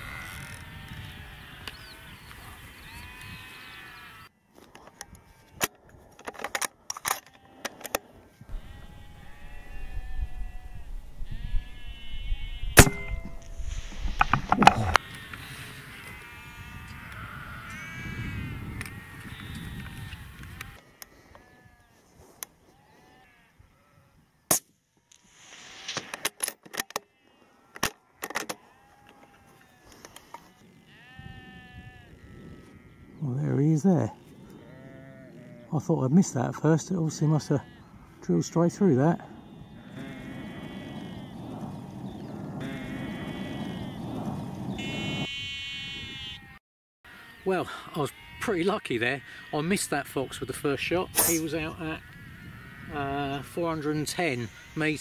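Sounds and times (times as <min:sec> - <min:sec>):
sheep bleating: 0:00.0 - 0:05.6, 0:08.5 - 0:12.8, 0:14.6 - 0:22.0, 0:22.6 - 0:24.2, 0:27.0 - 0:33.5, 0:34.1 - 0:35.9, 0:36.6 - 0:38.3, 0:39.0 - 0:55.0
rifle shot: 0:12.8 - 0:13.1
sharp crack: 0:24.5 - 0:27.1, 0:51.2 - 0:51.5.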